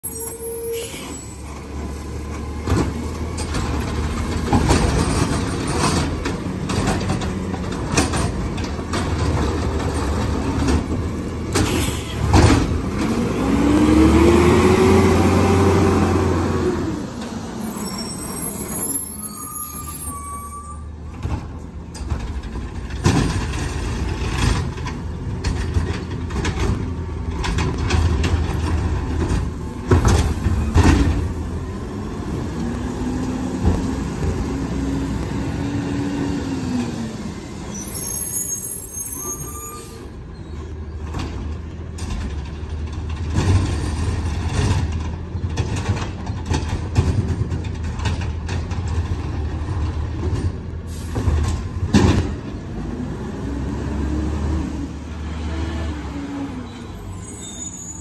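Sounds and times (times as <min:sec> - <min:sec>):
truck engine rumble: 0:00.0 - 0:58.0
loud clanks and bangs: 0:02.6 - 0:13.2, 0:21.1 - 0:31.7, 0:41.0 - 0:52.6.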